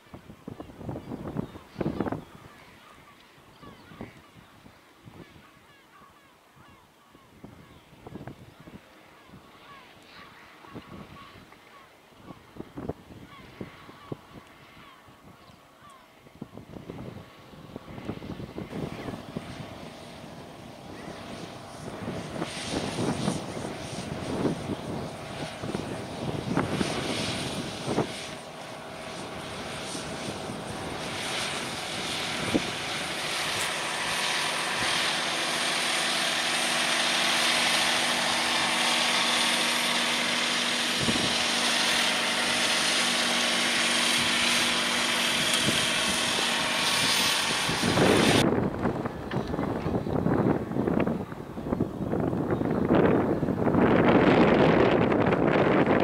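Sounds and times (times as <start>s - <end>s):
gusting wind on microphone: 0.0s - 5.7s, 6.6s - 11.5s, 12.2s - 15.6s, 16.2s - 56.0s
tractor diesel engine under load: 32.4s - 50.8s.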